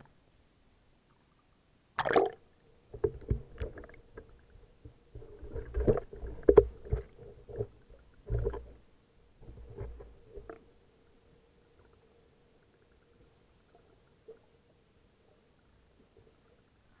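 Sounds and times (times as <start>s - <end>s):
faint steady hum: 0.0s - 17.0s
splash into water: 2.0s - 2.4s
underwater bubbling: 2.0s - 17.0s
underwater thumps and knocks: 2.9s - 8.8s.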